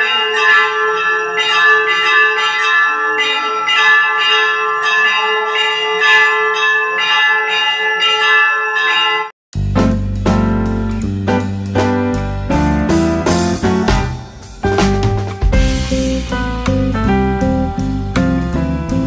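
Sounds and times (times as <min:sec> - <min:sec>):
temple bell ringing: 0:00.0 - 0:09.4.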